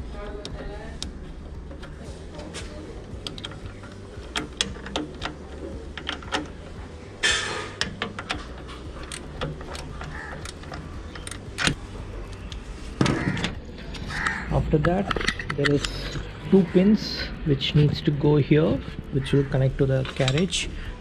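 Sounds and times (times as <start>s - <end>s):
spanner and bolts clinking: 1.6s - 12.7s, 13.3s - 16.3s.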